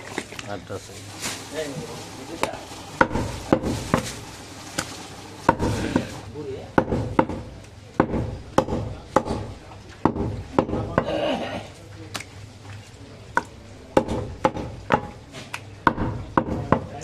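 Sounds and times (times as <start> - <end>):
cleaver chopping meat on wood: 3.0 - 4.0, 5.5 - 6.1, 6.8 - 11.1, 13.4 - 17.0.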